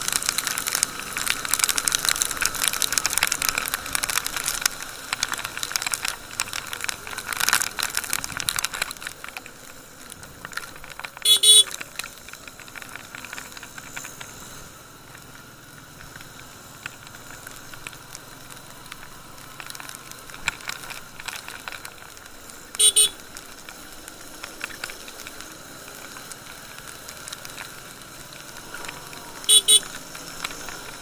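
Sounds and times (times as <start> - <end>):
raindrops ticking: 0.0 - 31.0
vehicle horn beeps: 11.2 - 11.7, 22.8 - 23.2, 29.4 - 29.9.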